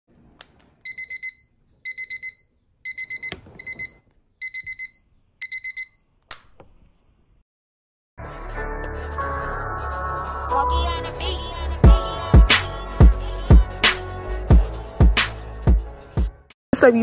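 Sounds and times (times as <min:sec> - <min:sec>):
alarm clock beeping: 0:00.9 - 0:06.0
music: 0:08.2 - 0:17.0.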